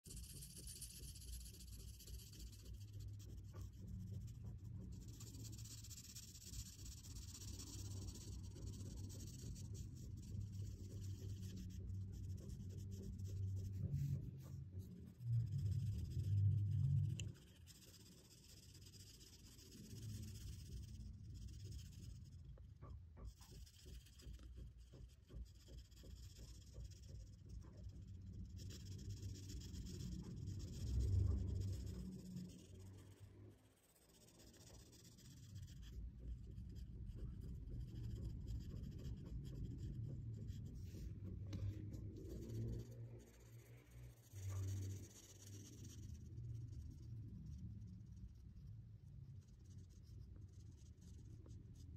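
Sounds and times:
marker scratching on paper: 0:00.0 - 0:48.4, 0:49.0 - 0:51.9
low rumble: 0:07.8 - 0:17.6.

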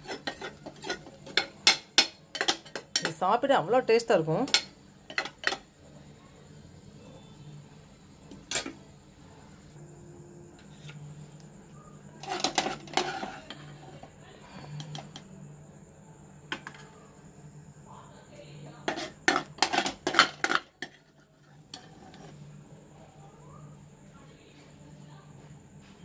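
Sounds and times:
metal spoon scraping a pan: 0:00.0 - 0:03.3, 0:04.5 - 0:05.7, 0:08.3 - 0:08.8, 0:10.6 - 0:11.1, 0:12.2 - 0:15.3, 0:16.5 - 0:17.0, 0:18.8 - 0:22.4.

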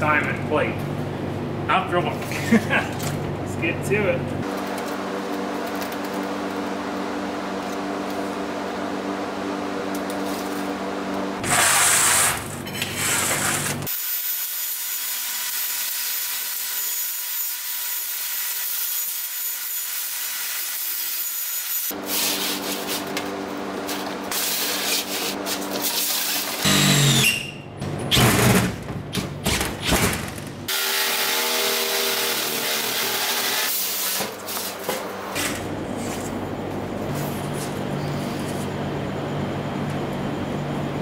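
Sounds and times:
jigsaw cutting metal plate: 0:25.8 - 0:27.4, 0:30.7 - 0:34.4.

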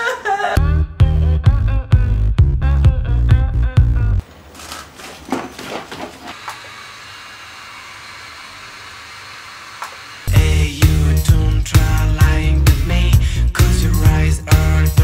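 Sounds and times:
music: 0:00.6 - 0:04.2, 0:10.3 - 0:15.0
handling knocks and rustles: 0:04.3 - 0:06.4
hair-removal device humming: 0:06.2 - 0:12.5.

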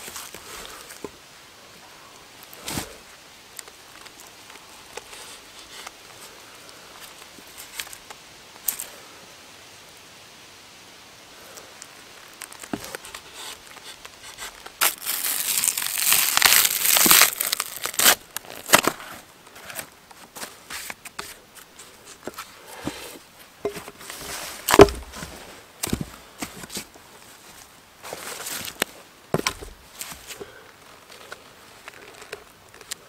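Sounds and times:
bark tearing: 0:12.6 - 0:19.1.

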